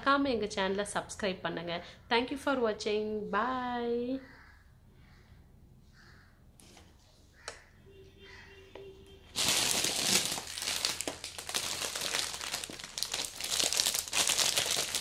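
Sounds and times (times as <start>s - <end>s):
plastic wrapping crinkling: 9.3s - 15.0s.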